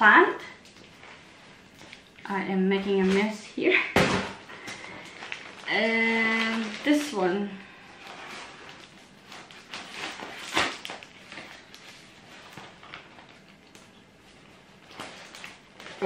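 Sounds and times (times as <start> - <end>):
kraft paper crinkling: 4.5 - 16.0.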